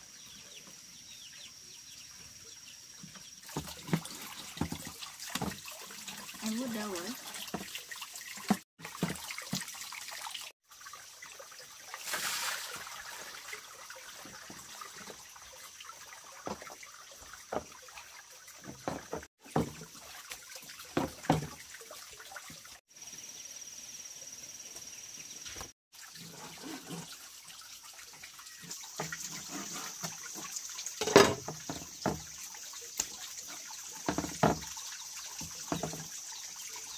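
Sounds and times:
water trickling and splashing: 1.9 - 23.6, 24.8 - 36.9
sharp knocks and clatters: 18.7 - 19.8, 34.1 - 34.7.

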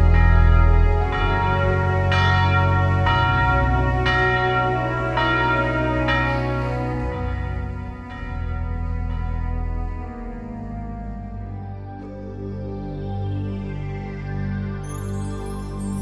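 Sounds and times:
church bell tolling: 0.0 - 10.7.

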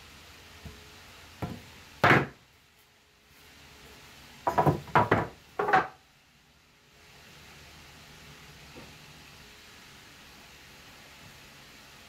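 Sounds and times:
wooden boards knocking: 1.4 - 2.4, 4.5 - 6.0.

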